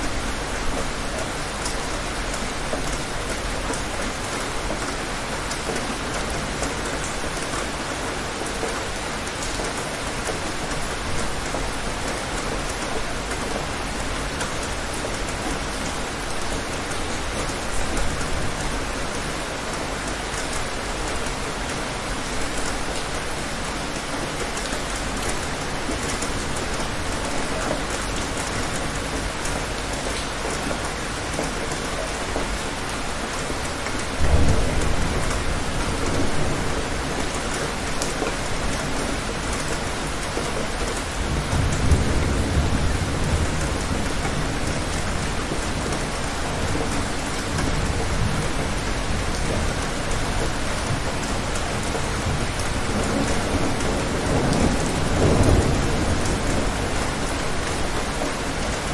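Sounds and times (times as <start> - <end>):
steady rain: 0.0 - 58.9
thunder rumbling: 41.2 - 58.9.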